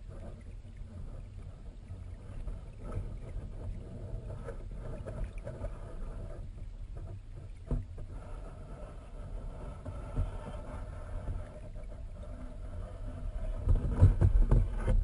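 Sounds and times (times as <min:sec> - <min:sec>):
underwater river rumble: 0:00.0 - 0:15.0
underwater knocks: 0:13.4 - 0:15.0.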